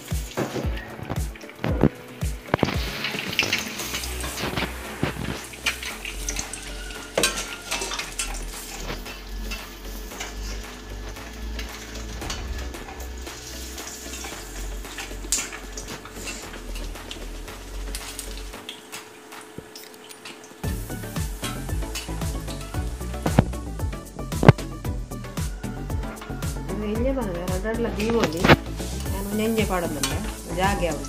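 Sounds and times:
deep-frying sizzle in oil: 0.0 - 26.7, 27.5 - 31.0
metal spatula scraping pan: 2.9 - 17.2.

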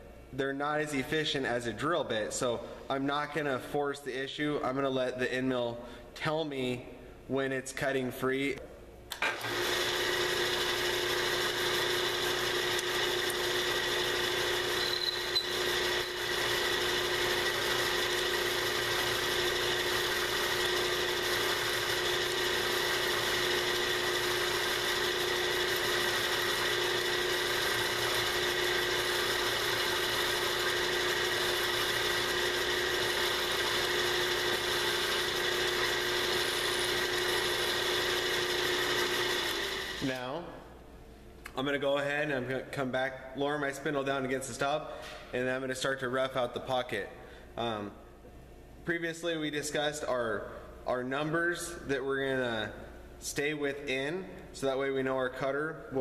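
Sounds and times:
milling machine spindle whining: 9.3 - 40.2.

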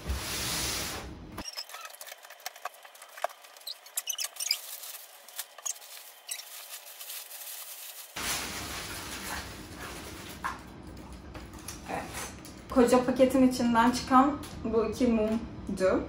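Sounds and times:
paper packing rustling: 1.4 - 10.8.

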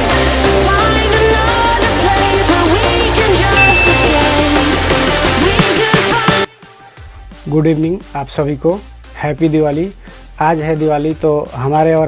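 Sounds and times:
pop music with heavy bass: 0.0 - 7.8.

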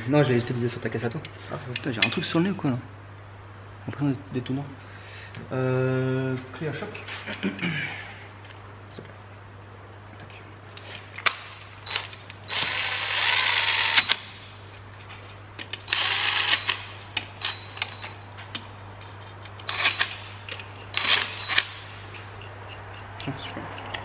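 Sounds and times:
impact wrench running: 11.8 - 14.4, 15.7 - 18.1, 19.5 - 22.9.

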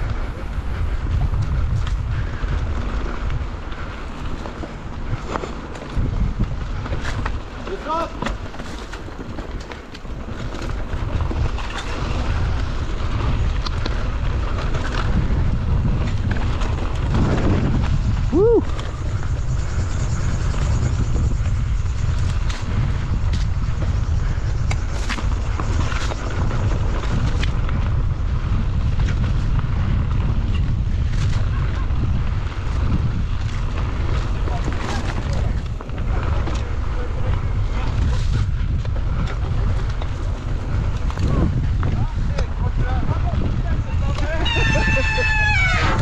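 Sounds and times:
bike crunching on rough trail: 0.0 - 46.0
wind buffeting microphone: 0.0 - 46.0.

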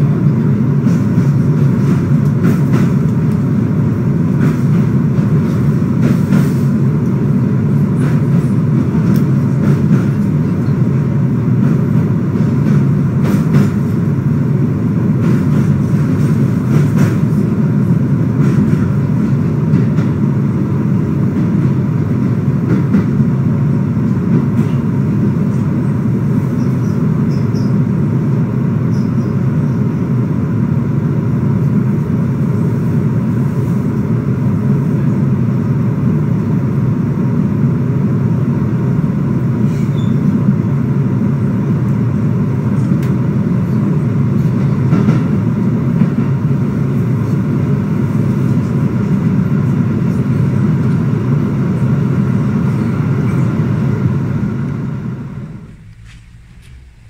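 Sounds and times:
vehicle interior rumble: 52.7 - 57.0.

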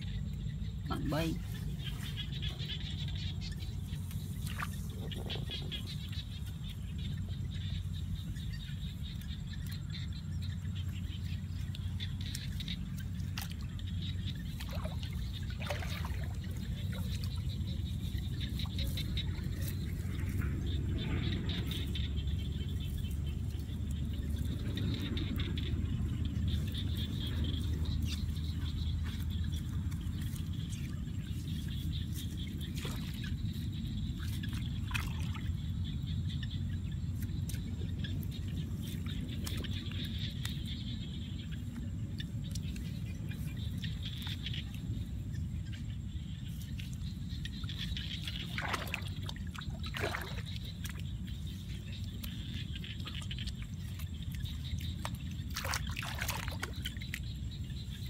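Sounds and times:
steady low rumble: 0.0 - 58.0
hands splashing in mud water: 14.6 - 17.6, 34.2 - 35.6, 48.2 - 51.3, 52.0 - 57.5.

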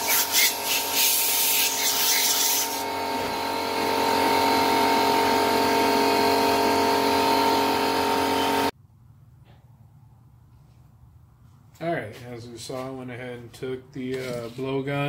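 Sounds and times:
air compressor running: 0.0 - 8.7.

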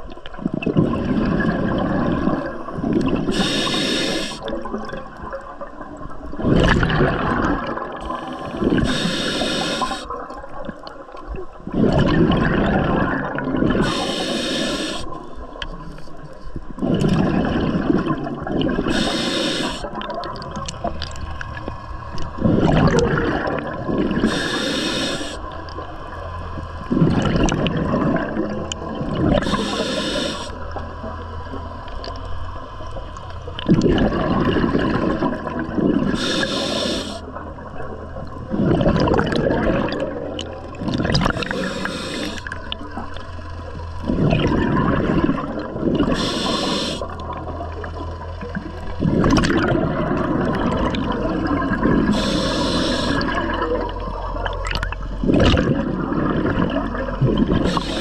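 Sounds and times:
exhaled bubbles gurgling: 0.0 - 58.0
regulator inhale hiss: 3.3 - 4.5, 8.0 - 10.1, 13.8 - 15.2, 18.8 - 19.9, 24.2 - 25.5, 29.3 - 30.6, 36.1 - 37.3, 41.3 - 42.7, 46.1 - 47.2, 52.0 - 53.4, 57.6 - 58.0.

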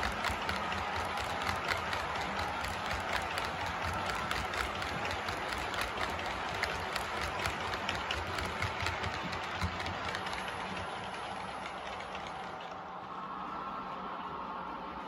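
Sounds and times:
model train wheels clattering: 0.0 - 12.8.

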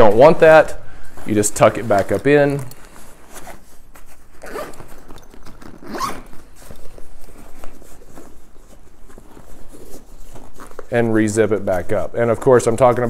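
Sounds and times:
nylon fabric rustling: 0.0 - 13.0
zipper being pulled closed: 2.6 - 8.6.

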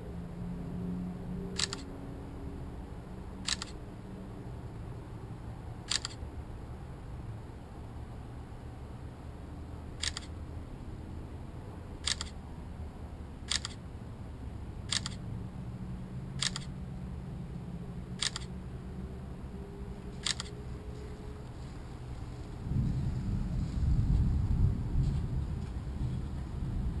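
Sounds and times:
low background noise: 0.0 - 27.0
camera shutter clicking: 1.6 - 1.9, 3.4 - 3.8, 5.9 - 6.2, 10.0 - 10.3, 12.0 - 12.4, 13.5 - 13.8, 14.9 - 15.2, 16.4 - 16.7, 18.2 - 18.5, 20.2 - 20.6.

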